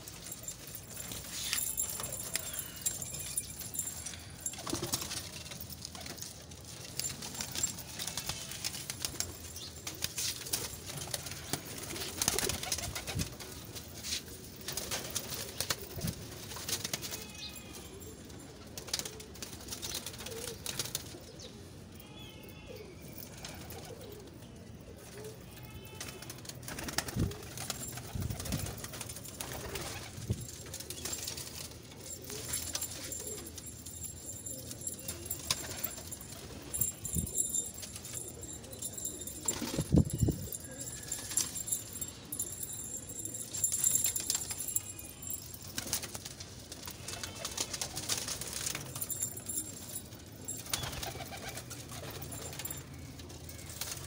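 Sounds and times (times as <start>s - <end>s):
pigeons cooing: 0.1s - 21.6s, 22.7s - 25.4s, 29.6s - 44.8s.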